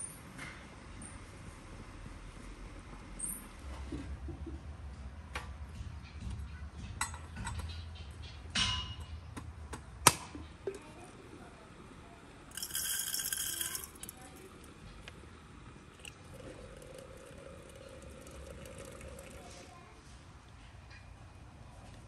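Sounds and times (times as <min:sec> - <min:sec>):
dry tea leaves rattling into glass: 0:12.5 - 0:14.4
metal clinks and taps: 0:12.6 - 0:14.1.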